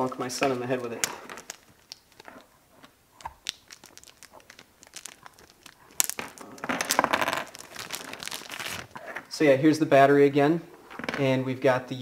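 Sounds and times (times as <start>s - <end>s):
plastic wrapping crinkling: 0.1s - 9.4s.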